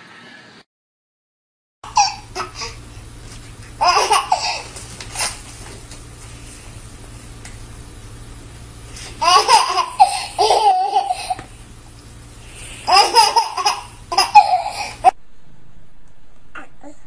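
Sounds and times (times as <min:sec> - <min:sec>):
baby laughing: 0:01.9 - 0:02.8, 0:03.8 - 0:05.3, 0:09.1 - 0:11.5, 0:12.8 - 0:15.2.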